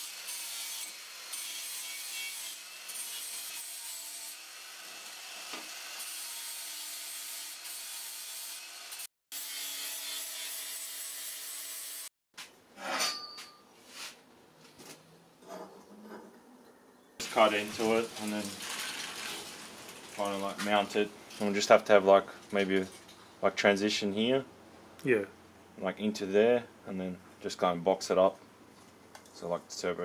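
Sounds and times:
angle grinder grinding metal: 0.0s - 12.1s.

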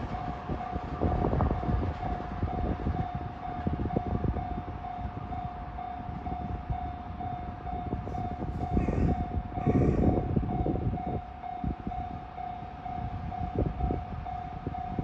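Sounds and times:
level crossing warning bell: 0.0s - 15.0s.

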